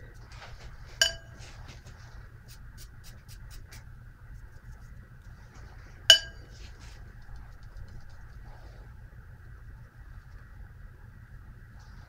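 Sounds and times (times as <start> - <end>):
paintbrush clinking on jar: 1.0 - 1.4, 6.1 - 6.5.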